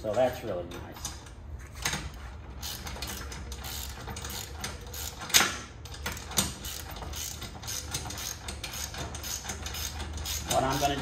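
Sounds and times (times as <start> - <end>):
socket ratchet clicking: 2.6 - 11.0.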